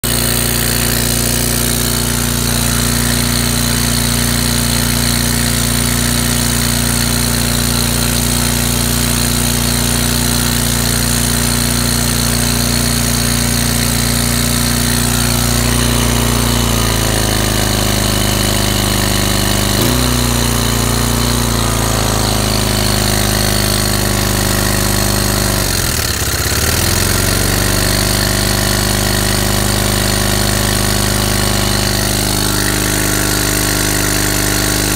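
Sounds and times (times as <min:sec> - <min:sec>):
small gasoline engine running: 0:00.0 - 0:34.9.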